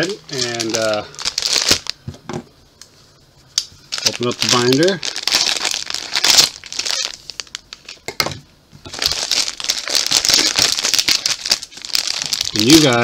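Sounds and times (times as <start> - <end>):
plastic wrapper crinkling: 0.0 - 2.0, 3.9 - 8.1, 8.8 - 13.0.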